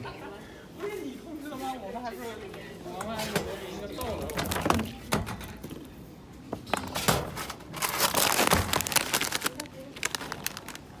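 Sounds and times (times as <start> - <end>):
plastic crisp packet crinkling: 7.7 - 11.0.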